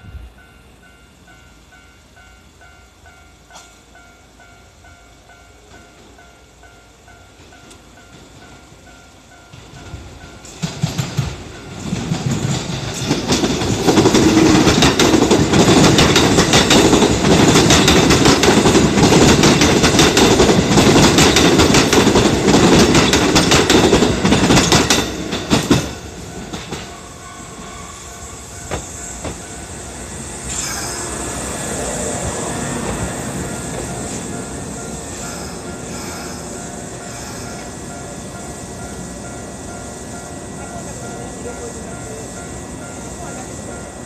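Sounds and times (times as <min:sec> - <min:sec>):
electric train passing: 0:00.0 - 0:44.0
wheels clattering over rail joints: 0:09.6 - 0:27.0.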